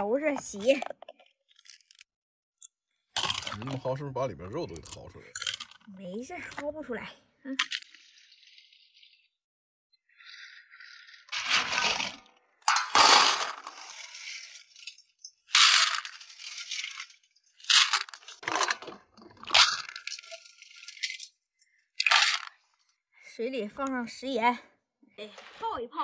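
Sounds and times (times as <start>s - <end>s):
shells clattering in bowl: 12.7s - 18.8s.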